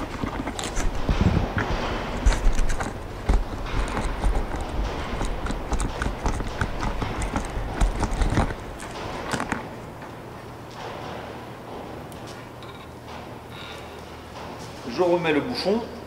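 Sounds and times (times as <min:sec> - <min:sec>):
low thumps: 0:00.0 - 0:12.1.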